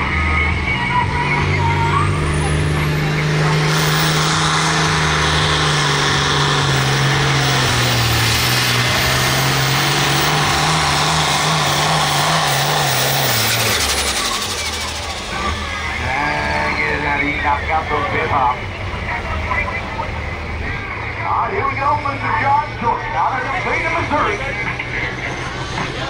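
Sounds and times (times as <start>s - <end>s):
diesel tractor engine roaring: 0.0s - 26.0s.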